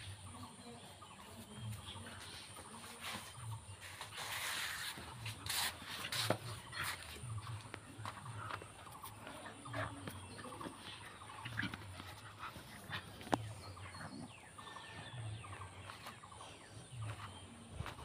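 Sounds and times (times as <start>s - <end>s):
scuffling on dry dirt: 1.2s - 18.0s
dogs growling: 6.6s - 17.0s.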